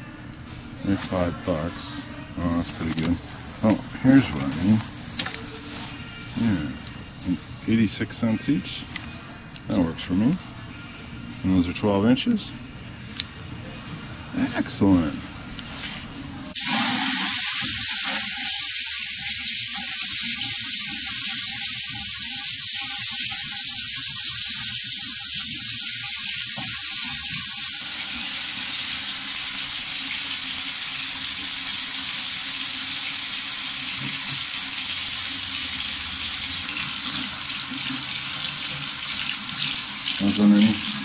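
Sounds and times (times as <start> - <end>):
tap water running into basin: 16.6 - 41.0.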